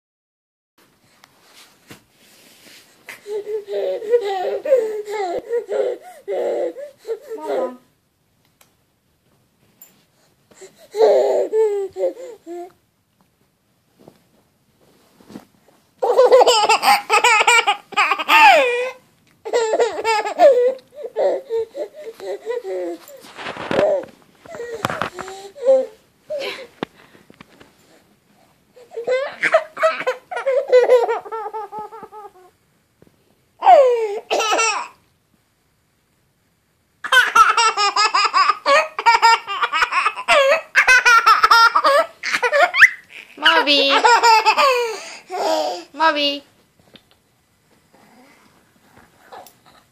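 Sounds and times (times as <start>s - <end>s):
baby laughing hard: 3.3s - 6.8s, 16.0s - 23.0s, 28.9s - 32.5s, 33.6s - 35.0s, 37.0s - 45.9s
baby squealing: 29.0s - 32.5s, 41.8s - 45.8s.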